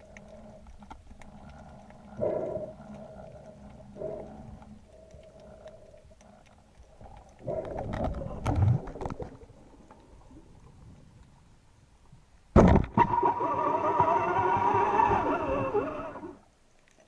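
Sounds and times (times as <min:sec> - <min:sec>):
underwater knocking and rustling: 0:00.0 - 0:13.2.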